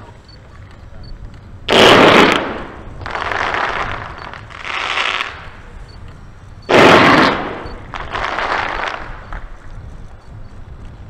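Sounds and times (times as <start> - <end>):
firework blasts: 1.4 - 10.7
rushing hiss of fireworks: 1.7 - 5.7, 6.7 - 9.6.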